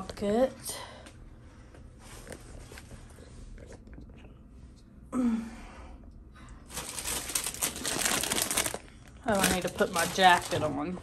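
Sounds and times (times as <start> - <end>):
woman sighing: 5.1 - 5.9.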